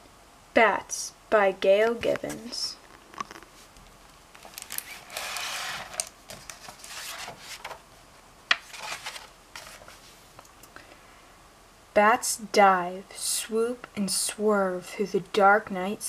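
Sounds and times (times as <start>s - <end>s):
book pages turning: 4.3s - 7.8s, 8.5s - 10.0s.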